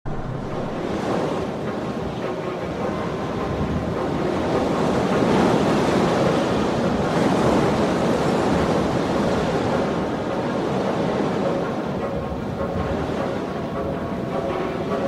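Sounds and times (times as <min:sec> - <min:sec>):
wind rushing: 0:00.0 - 0:02.4
surf: 0:00.1 - 0:15.0.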